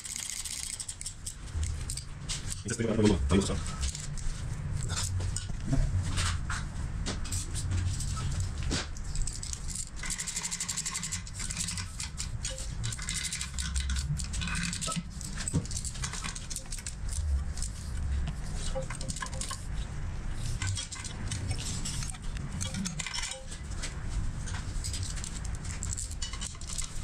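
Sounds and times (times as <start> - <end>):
rapid clicks: 0.0 - 5.6, 7.3 - 27.0
low rumble: 1.4 - 8.6.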